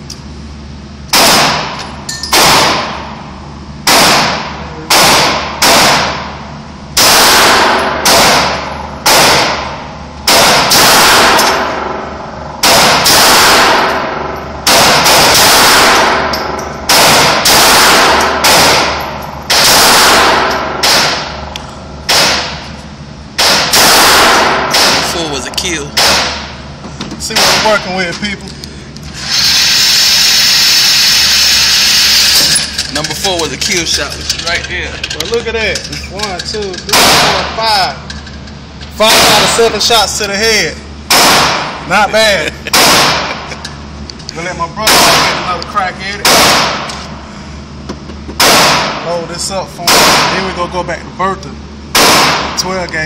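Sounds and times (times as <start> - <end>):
gunshots echoing indoors: 1.1 - 3.1, 3.8 - 22.8, 23.4 - 26.6, 27.3 - 27.8, 36.9 - 37.6, 41.1 - 41.8, 42.7 - 43.5, 44.8 - 45.5, 46.2 - 47.0, 48.4 - 49.1, 49.8 - 50.5, 51.9 - 52.6.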